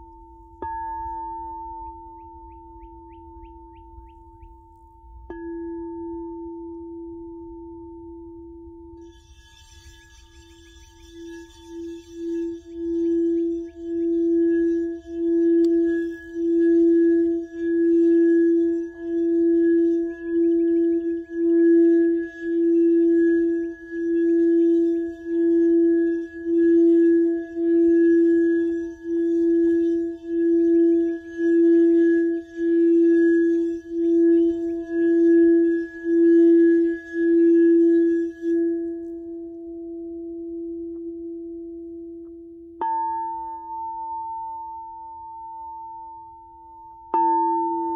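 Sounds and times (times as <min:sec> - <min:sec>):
singing bowl tone: 0:00.0 - 0:47.9
wand scratching on bowl rim: 0:09.0 - 0:38.9.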